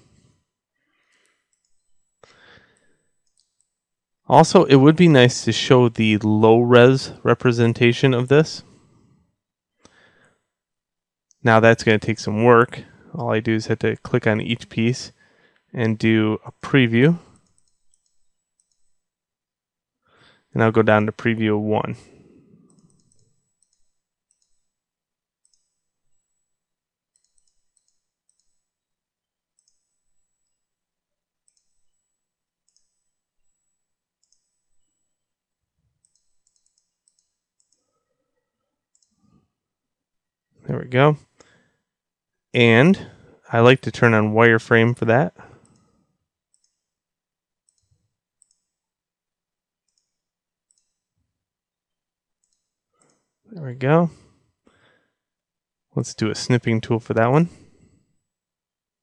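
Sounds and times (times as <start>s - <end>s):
faint computer mouse clicks: 36.0s - 37.9s, 47.7s - 48.7s, 50.7s - 51.0s.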